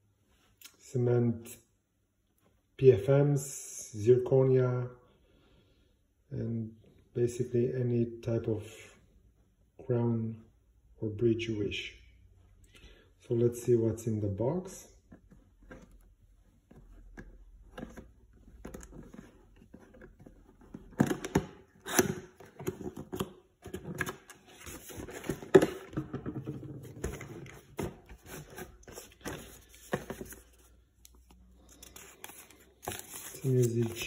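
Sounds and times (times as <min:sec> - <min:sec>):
cardboard box being opened: 0:18.6 - 0:30.7, 0:31.7 - 0:34.0
paper rustling: 0:22.6 - 0:34.0.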